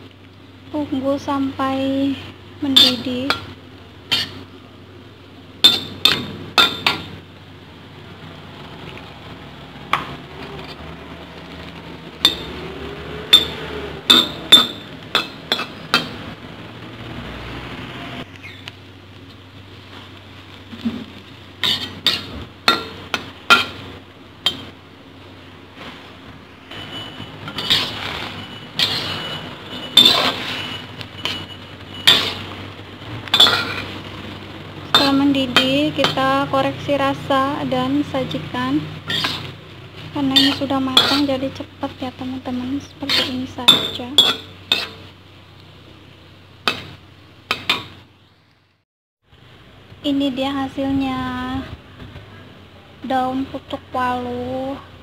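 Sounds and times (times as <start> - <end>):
metal spatula scraping steel wok: 2.6 - 4.5, 5.6 - 7.2, 11.5 - 16.2, 20.8 - 24.8, 25.8 - 32.6, 33.2 - 34.2, 34.8 - 36.5, 37.3 - 45.2.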